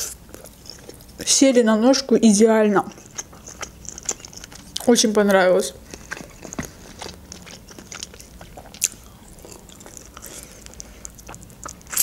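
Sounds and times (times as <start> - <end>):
wet chewing: 0.0 - 1.4, 2.7 - 12.0
chicken wing crunching: 5.8 - 12.0.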